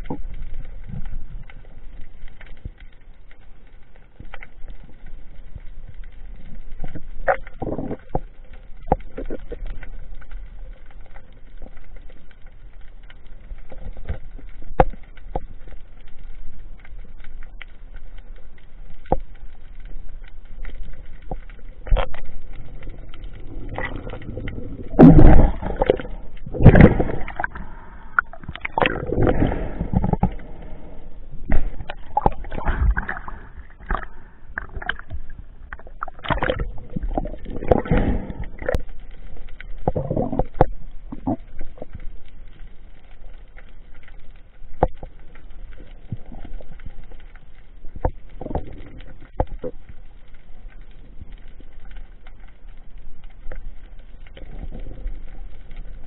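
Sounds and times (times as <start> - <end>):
underwater clicks and knocks: 6.4 - 10.4, 13.6 - 16.1, 20.2 - 27.6, 28.2 - 30.4, 31.4 - 42.1, 44.8 - 47.4, 48.0 - 51.5
water rushing and sloshing: 20.8 - 42.5.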